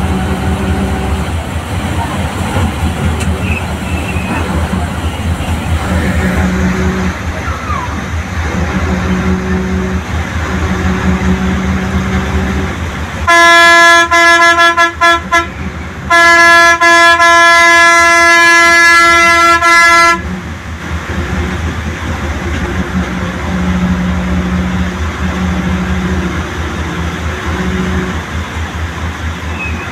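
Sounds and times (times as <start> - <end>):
bus engine drone: 0.0 - 29.9
bus horn blowing: 5.9 - 7.3, 8.5 - 20.4, 23.4 - 28.2.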